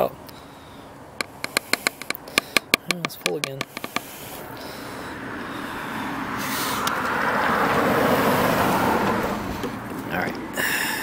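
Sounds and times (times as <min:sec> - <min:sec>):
passing vehicle road noise: 0:03.5 - 0:11.0.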